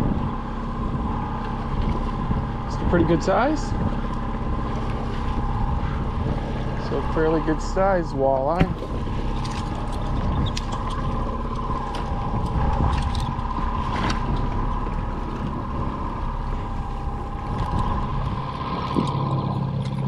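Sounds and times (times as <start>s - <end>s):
outboard motor humming: 0.0s - 20.0s
wind and water noise: 0.0s - 20.0s.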